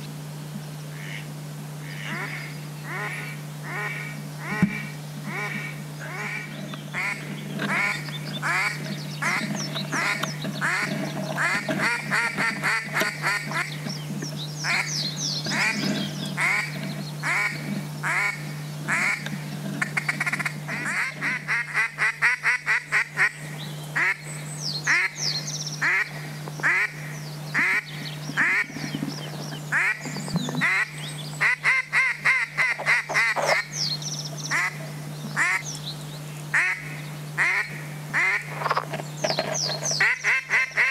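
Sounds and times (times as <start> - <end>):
steady low hum: 0.0 - 40.9
duck quacking: 0.9 - 13.8, 14.6 - 23.4, 25.8 - 27.0, 27.6 - 28.8, 29.7 - 33.7, 34.5 - 34.8, 35.4 - 35.7, 36.5 - 38.8, 40.0 - 40.9.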